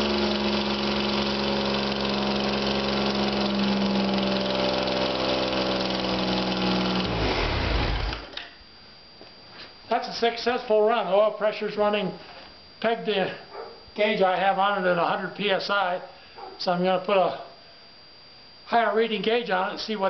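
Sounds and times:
car engine running: 0:00.0 - 0:08.3
engine winding down: 0:00.0 - 0:08.4.

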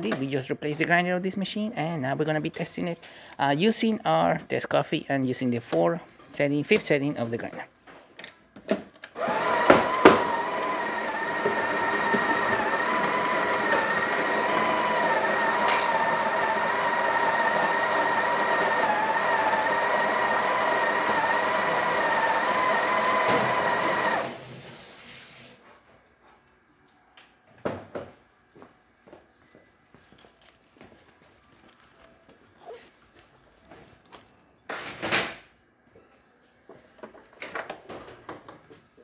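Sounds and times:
coffee grinder motor whine: 0:09.2 - 0:24.7.

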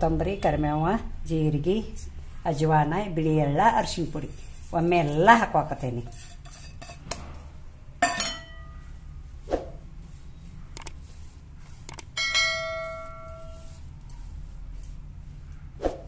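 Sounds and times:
steel vessels striking and ringing: 0:08.0 - 0:08.8, 0:12.2 - 0:13.7.

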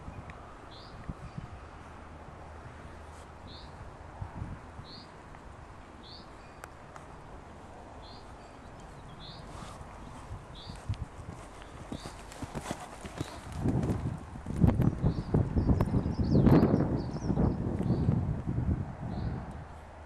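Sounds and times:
horse hoofbeats on sand: 0:09.5 - 0:15.1.

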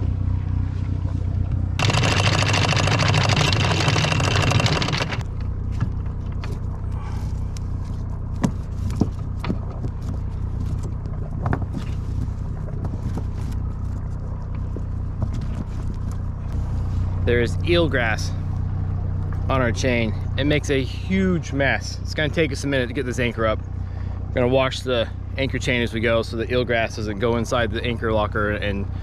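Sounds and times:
boat engine idling: 0:00.0 - 0:29.0
anchor chain clinking: 0:01.8 - 0:05.2.

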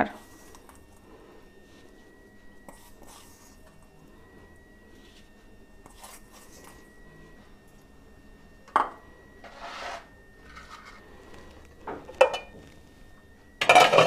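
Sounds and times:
glass pot lid clinking: 0:12.2 - 0:12.5.

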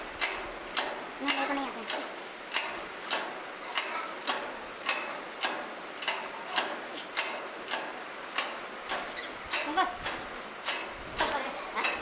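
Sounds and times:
exercise machine clicking: 0:00.0 - 0:12.0.

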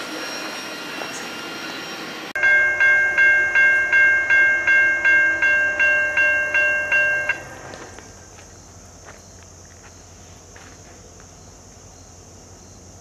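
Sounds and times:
freight train rolling: 0:00.0 - 0:09.0
crossing warning bell ringing: 0:00.4 - 0:08.3.

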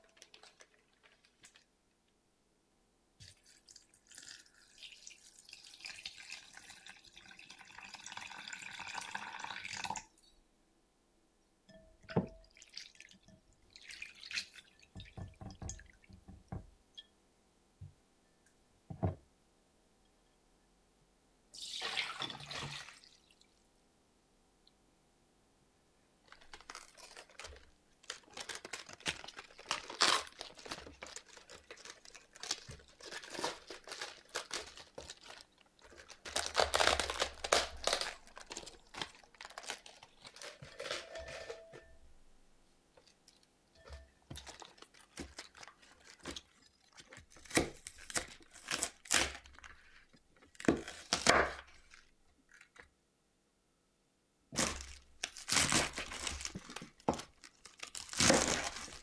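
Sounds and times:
cabbage leaves tearing: 0:26.5 - 0:41.1, 0:47.4 - 0:49.7, 0:50.6 - 0:52.0, 0:54.6 - 0:59.0.

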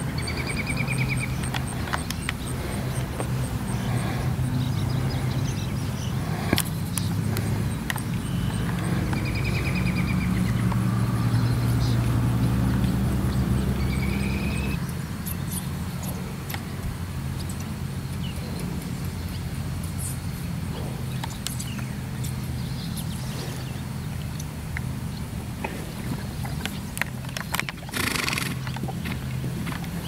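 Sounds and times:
small bird chirping trills: 0:00.0 - 0:12.1
low engine-like hum: 0:00.0 - 0:30.0.

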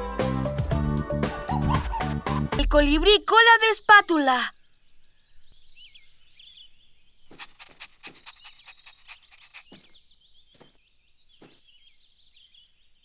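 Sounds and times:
birds chirping: 0:02.6 - 0:13.0.

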